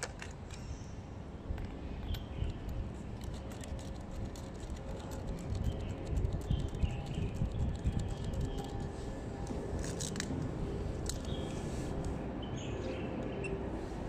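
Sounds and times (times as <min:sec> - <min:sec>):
cable clicks and rattles: 0:01.6 - 0:11.4.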